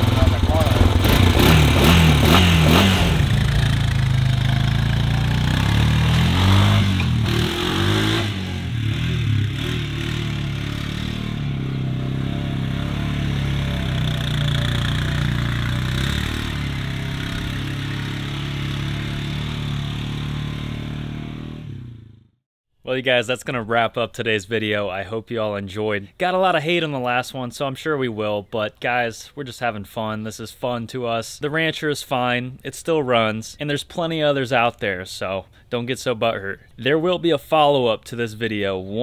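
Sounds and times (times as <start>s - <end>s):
atv engine revving: 0.0s - 22.3s.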